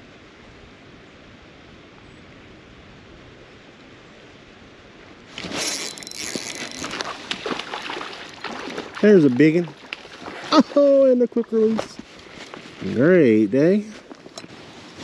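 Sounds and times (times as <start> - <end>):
creek water hissing: 5.2 - 15.0
fish splashing at surface: 5.4 - 10.5.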